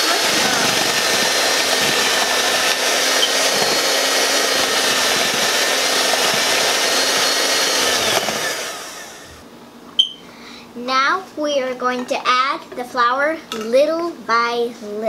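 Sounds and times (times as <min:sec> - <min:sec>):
electric hand mixer running: 0:00.0 - 0:09.4.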